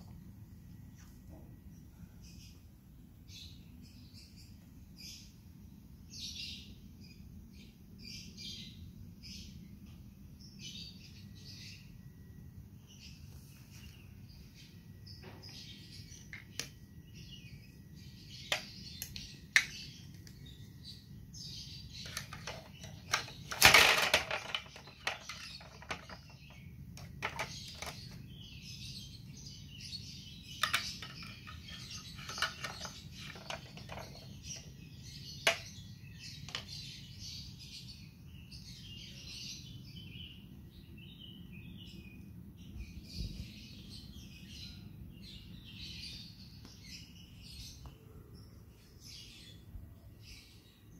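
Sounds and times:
birds chirping: 0.0 - 50.9
plastic toy pieces clattering: 22.0 - 28.2, 30.6 - 34.7, 35.4 - 35.7.

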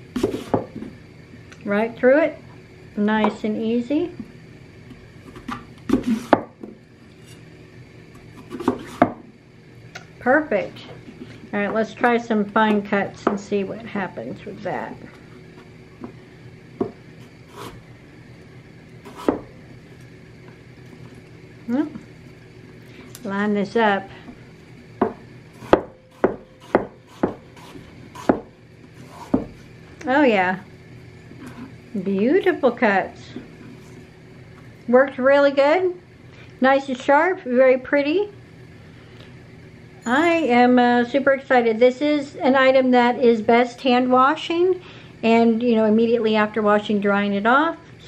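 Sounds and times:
knife slicing apple: 0.1 - 0.8, 5.2 - 6.5, 8.2 - 9.2, 17.2 - 17.8, 19.1 - 19.5, 25.6 - 29.6.

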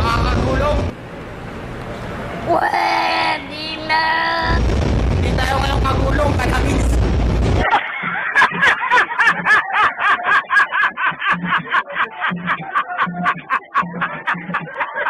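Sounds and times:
loud noise: 0.0 - 1.0, 4.4 - 10.0
man laughing hysterically: 7.6 - 15.0.

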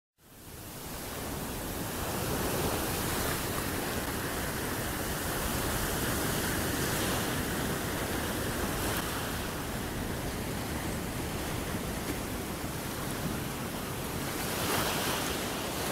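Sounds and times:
surf breaking on beach: 0.7 - 15.9.

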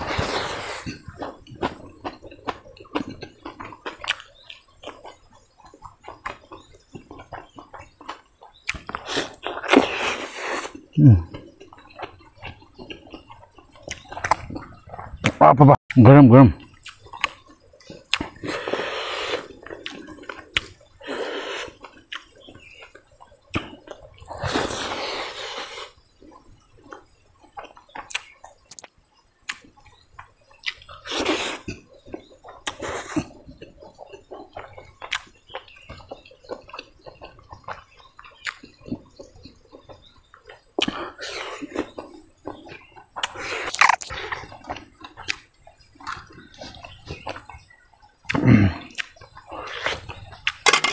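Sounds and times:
wet chewing and lip smacks: 0.0 - 15.4, 16.6 - 50.7
wet slurps: 18.1 - 22.3.

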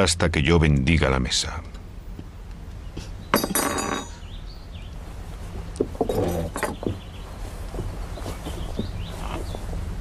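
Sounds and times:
steady low hum: 0.0 - 10.0
scraping rustle: 5.0 - 10.0.

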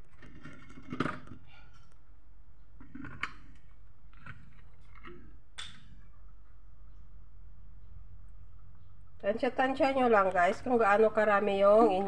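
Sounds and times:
faint clicks and knocks: 0.0 - 7.1.

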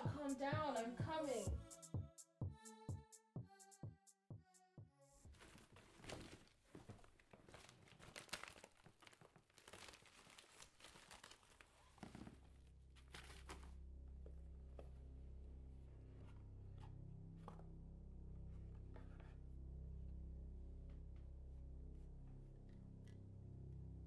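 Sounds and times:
mailer tearing and crinkling: 5.3 - 13.7
low steady hum: 11.9 - 24.0.

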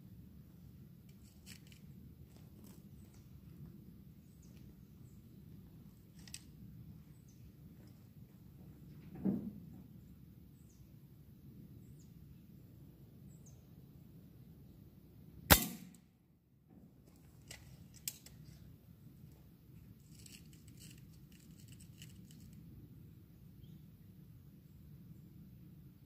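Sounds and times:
air rifle shot: 15.5 - 16.0.

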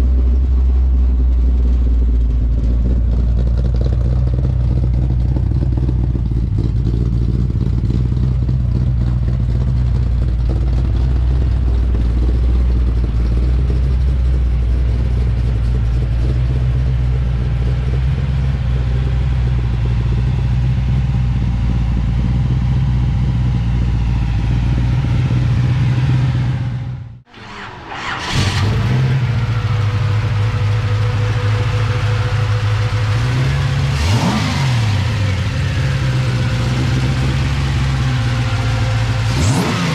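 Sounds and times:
truck engine idling: 0.0 - 39.9.

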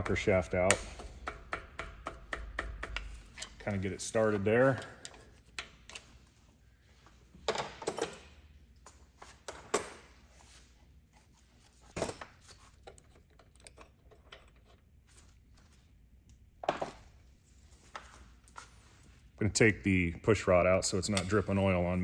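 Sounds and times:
small metal clicks and knocks: 12.8 - 14.8.

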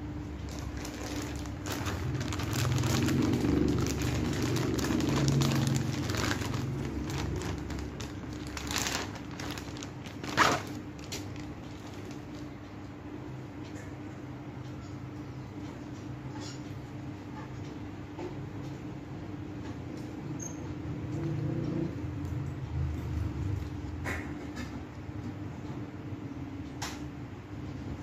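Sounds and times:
low steady hum: 0.0 - 19.7
plastic packaging crinkling: 0.5 - 12.5.

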